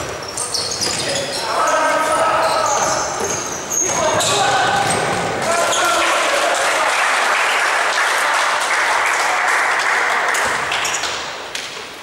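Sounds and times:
spectators applauding and cheering: 5.5s - 11.1s.

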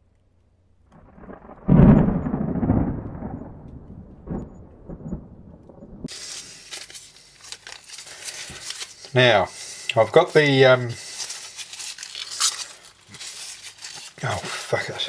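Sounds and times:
cinematic rumble: 0.0s - 6.1s
heavy boom: 1.0s - 6.1s
pastry trimmings rustling: 6.1s - 15.0s.

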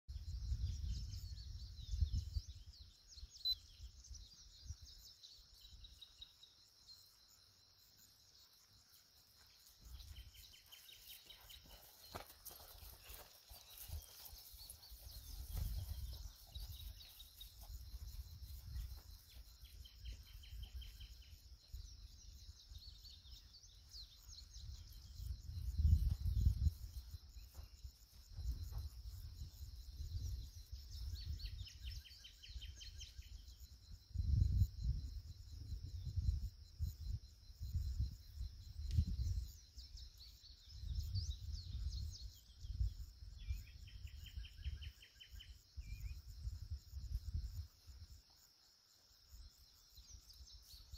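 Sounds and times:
wind buffeting the microphone: 0.1s - 5.0s, 12.8s - 48.2s
birds chirping and trilling: 0.1s - 34.0s
insects buzzing: 0.2s - 50.9s.

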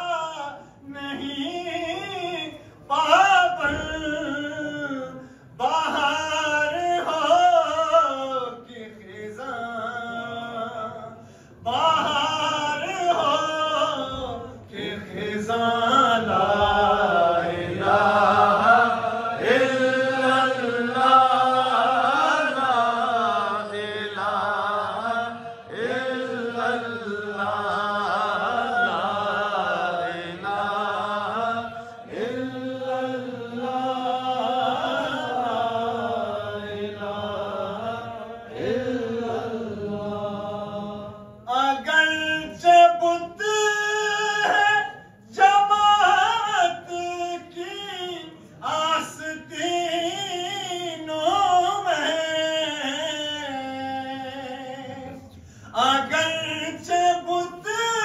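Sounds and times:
man chanting through microphones: 40.2s - 58.0s.

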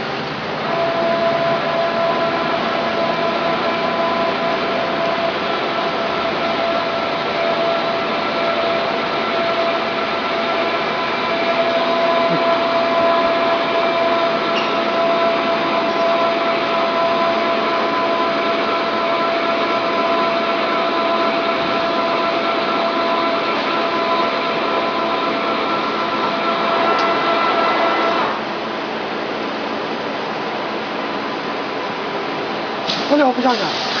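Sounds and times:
high whining tones: 0.6s - 28.4s
machine mechanical hiss: 32.8s - 34.0s.

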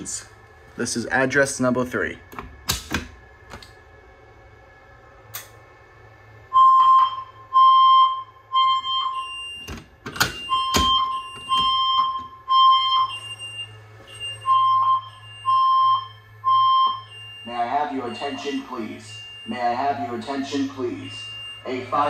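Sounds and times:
fire alarm electronic tone: 6.5s - 22.0s.

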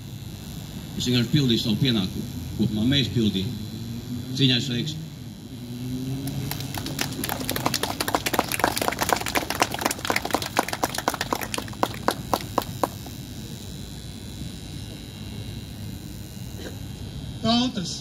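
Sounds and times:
small crowd clapping: 6.2s - 13.2s.

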